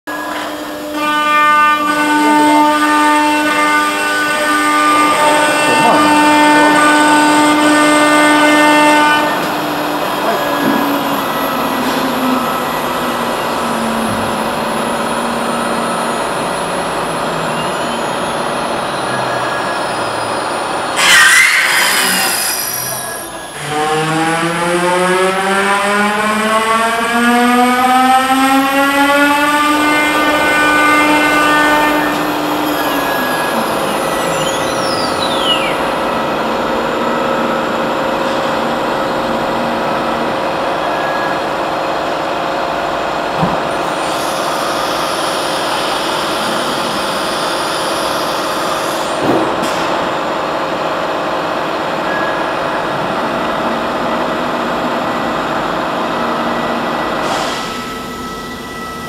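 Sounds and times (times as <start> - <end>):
high falling whistle: 10.4 - 24.3, 29.8 - 36.4.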